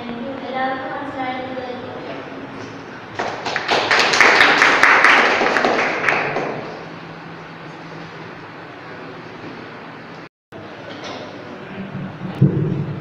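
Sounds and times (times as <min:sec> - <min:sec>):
audience applause: 0:03.2 - 0:06.8.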